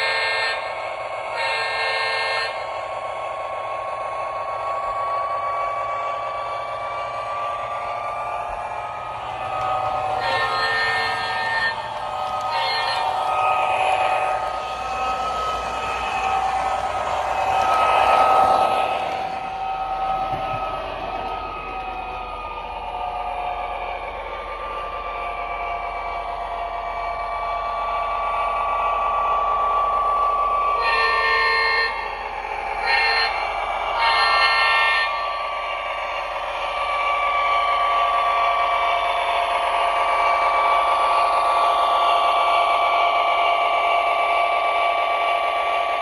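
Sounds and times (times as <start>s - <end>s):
model train horn blasts: 0.0s - 2.8s, 8.6s - 21.7s, 29.6s - 36.3s
model train diesel engine sound: 0.0s - 46.0s.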